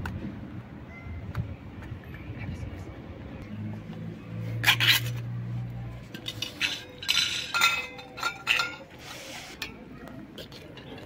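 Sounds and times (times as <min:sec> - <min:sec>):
metal lid scraping: 0:04.6 - 0:05.2, 0:06.1 - 0:11.0.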